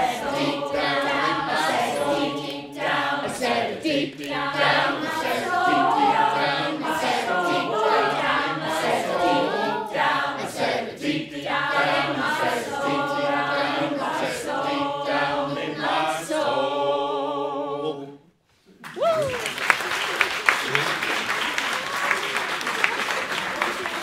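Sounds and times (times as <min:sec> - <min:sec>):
choir singing a cappella: 0:00.0 - 0:18.4.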